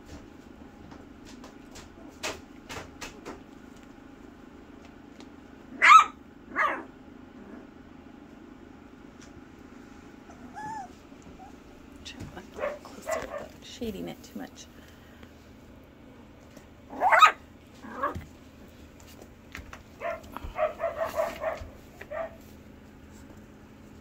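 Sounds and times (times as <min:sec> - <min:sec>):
puppies yipping: 0:05.8 - 0:06.9, 0:10.3 - 0:11.6, 0:16.9 - 0:17.4
puppy whimper: 0:10.2 - 0:11.6.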